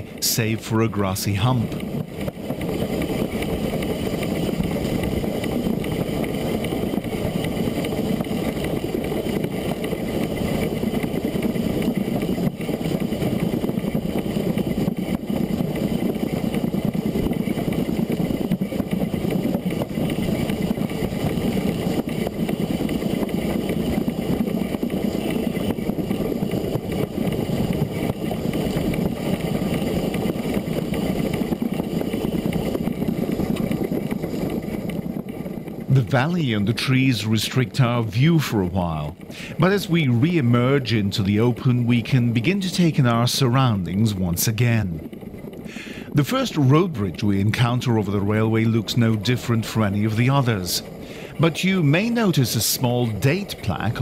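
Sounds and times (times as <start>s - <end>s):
steam locomotive rumbling: 0.0s - 54.0s.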